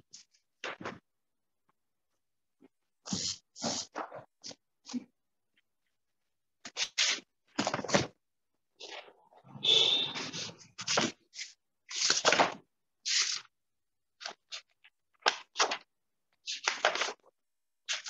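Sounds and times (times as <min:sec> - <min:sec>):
rustling and handling noise: 0:00.0 - 0:13.5.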